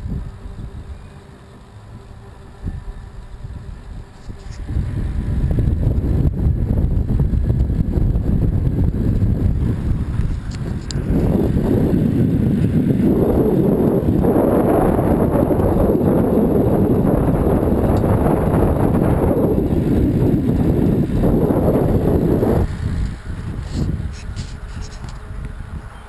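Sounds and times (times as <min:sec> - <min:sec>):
wind buffeting microphone: 0:00.0 - 0:01.1, 0:01.8 - 0:26.0
bike tyres rolling on concrete: 0:03.8 - 0:25.8.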